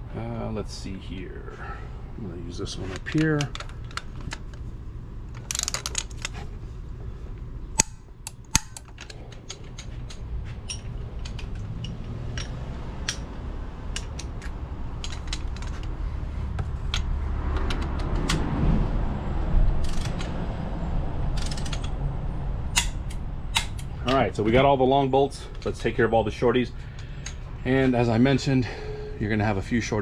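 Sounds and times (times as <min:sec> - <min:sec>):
steady low rumble: 0:00.0 - 0:30.0
ratchet wrench clicking: 0:07.8 - 0:13.3, 0:21.4 - 0:22.0
tools clacking on metal: 0:07.8 - 0:13.3, 0:21.4 - 0:22.0.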